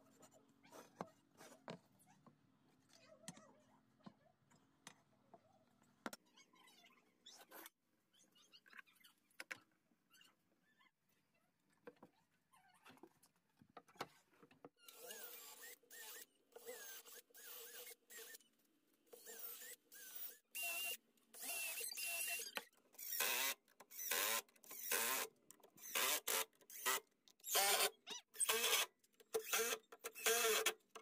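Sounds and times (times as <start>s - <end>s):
scraping strokes with squeaky creaks: 0.1s - 2.3s, 6.2s - 9.3s, 13.9s - 18.5s, 19.1s - 31.0s.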